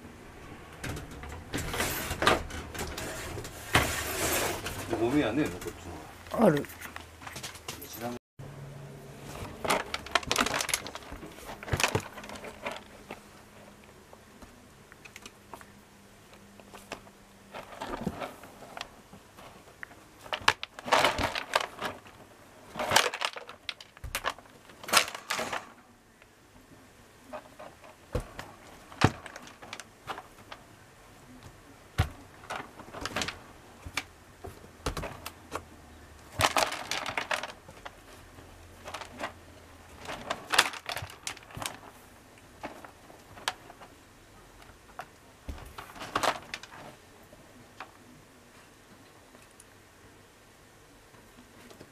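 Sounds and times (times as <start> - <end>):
kitten digging in pellet litter: 9.0 - 15.8, 16.4 - 25.9, 27.3 - 48.1.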